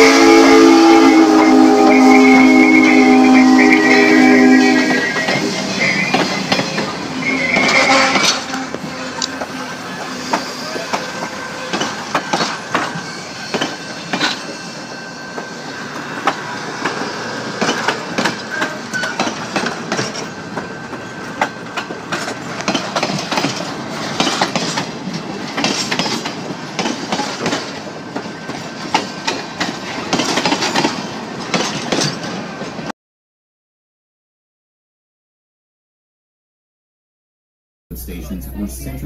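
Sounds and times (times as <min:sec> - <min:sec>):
train wheels clanking over rail joints: 0:05.1 - 0:14.8, 0:15.4 - 0:32.9.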